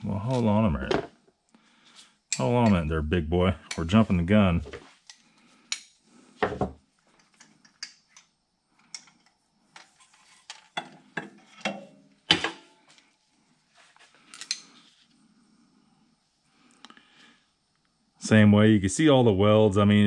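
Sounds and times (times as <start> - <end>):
tools and parts clinking: 0.2 - 1.2, 2.3 - 2.8, 4.6 - 13.0, 14.2 - 14.9.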